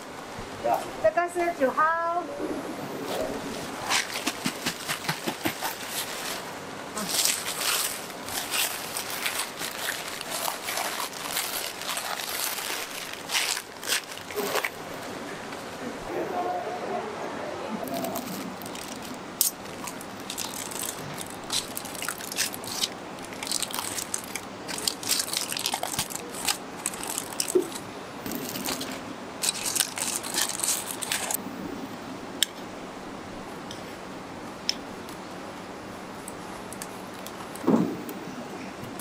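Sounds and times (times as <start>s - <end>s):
aluminium foil crinkling: 3.9s - 14.9s, 17.9s - 31.4s.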